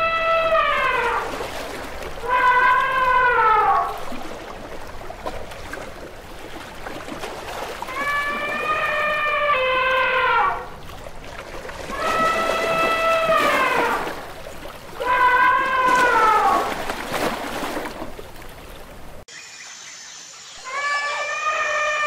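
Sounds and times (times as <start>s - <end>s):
running stream water: 0.0s - 22.0s
elephant trumpeting: 20.6s - 22.0s.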